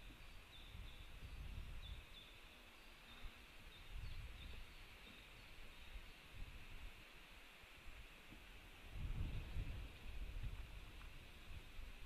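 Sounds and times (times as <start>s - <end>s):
wind rumble on microphone: 0.0s - 2.3s, 3.6s - 7.1s, 7.9s - 12.0s
small birds chirping: 0.0s - 6.4s.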